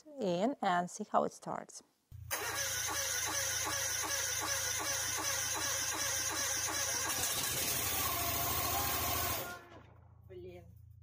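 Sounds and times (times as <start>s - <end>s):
engine cranking with electric starter: 2.3s - 9.9s.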